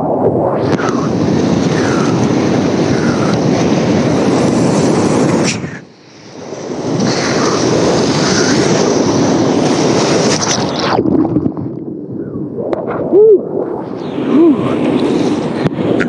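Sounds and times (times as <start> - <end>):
whitewater rapid roaring: 0.6 - 11.0.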